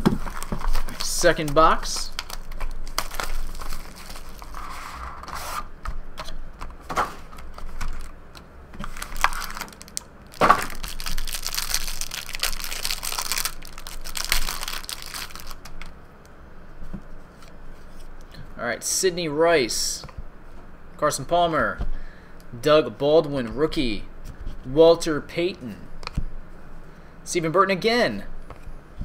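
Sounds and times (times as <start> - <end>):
plastic wrapping crinkling and tearing: 0.0 - 4.8, 7.3 - 8.1, 8.8 - 15.9.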